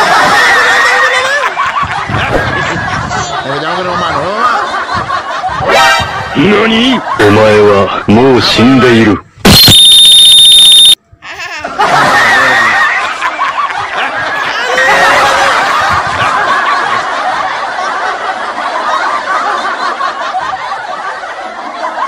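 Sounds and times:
laughter sound effect: 0:00.0 - 0:07.1, 0:11.2 - 0:22.0
harsh high tone: 0:09.5 - 0:11.0.

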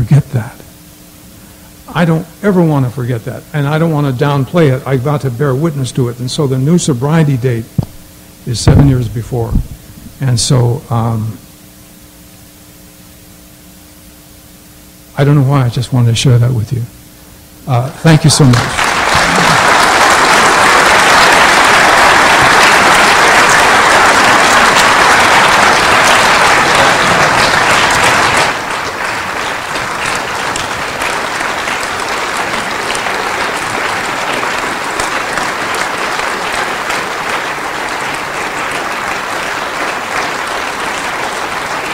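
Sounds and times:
audience applauding: 0:18.3 - 0:41.9.

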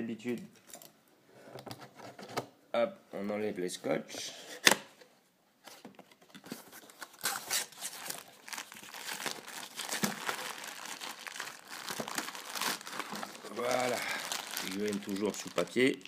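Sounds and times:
packaging crinkling: 0:06.7 - 0:16.0.

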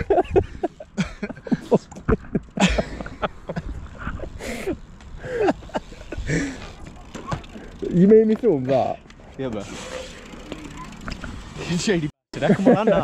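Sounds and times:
man laughing: 0:00.0 - 0:06.8, 0:12.4 - 0:13.0.

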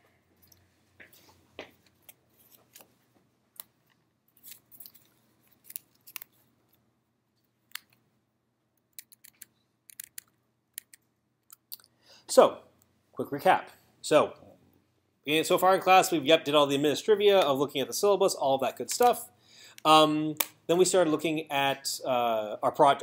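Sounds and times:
faint irregular clicks: 0:08.7 - 0:12.0.

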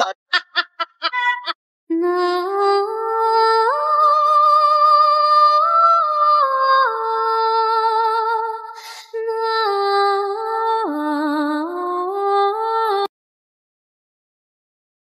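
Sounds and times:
woman singing wordless melody: 0:01.9 - 0:13.1.

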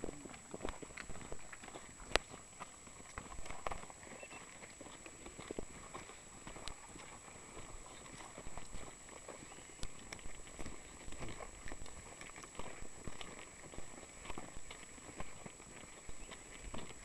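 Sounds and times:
footsteps crunching dry leaves: 0:00.0 - 0:17.0.

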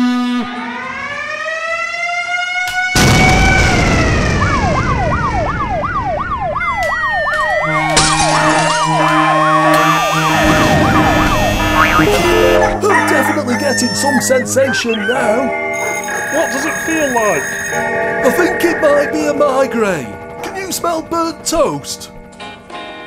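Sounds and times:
siren-like electronic wail: 0:00.0 - 0:20.2
rising and falling tone: 0:06.6 - 0:13.0
pulsing buzzer tone: 0:07.6 - 0:20.3.

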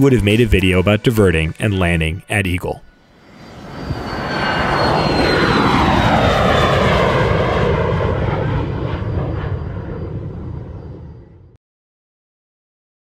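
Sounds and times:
jet aircraft roaring overhead: 0:00.0 - 0:11.6
jet engine whine: 0:02.8 - 0:11.6.

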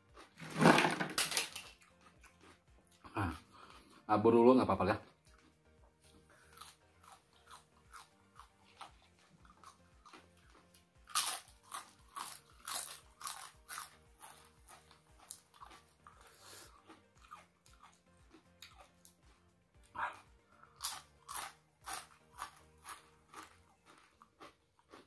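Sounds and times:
soft chewing: 0:01.7 - 0:04.1, 0:05.0 - 0:25.0
crisp crackers crunching: 0:06.5 - 0:18.0, 0:20.7 - 0:25.0.

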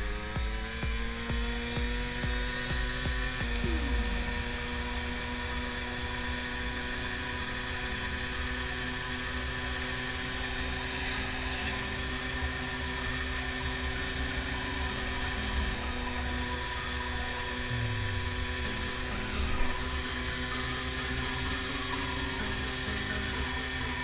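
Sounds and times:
road rumble: 0:00.0 - 0:24.0
two-stroke moped engine: 0:00.0 - 0:24.0.

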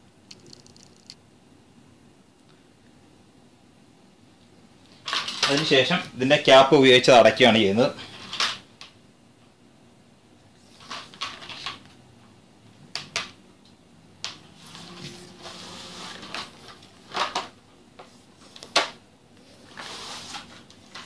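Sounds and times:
plastic scraping: 0:14.6 - 0:17.6.

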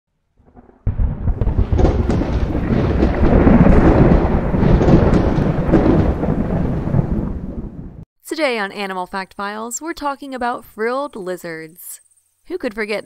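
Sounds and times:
heavy low thunder-like rumble: 0:00.5 - 0:08.0.

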